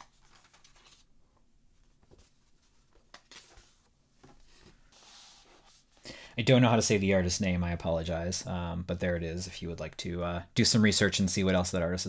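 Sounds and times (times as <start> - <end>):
paper and card rustling: 0.0 - 1.1, 1.8 - 6.0.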